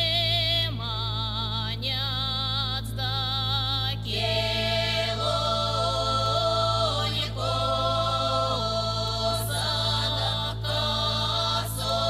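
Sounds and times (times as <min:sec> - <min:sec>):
woman singing with wide vibrato: 0:00.0 - 0:12.0
women singing in parts: 0:04.0 - 0:12.0.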